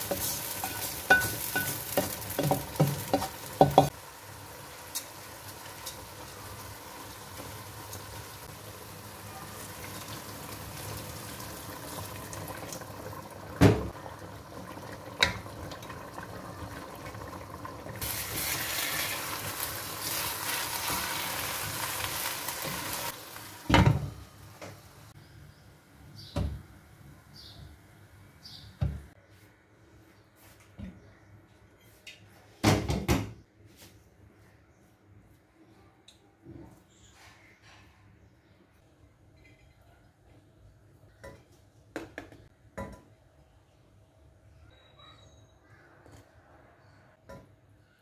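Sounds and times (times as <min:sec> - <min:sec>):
pot sizzling: 0:00.0 - 0:25.2.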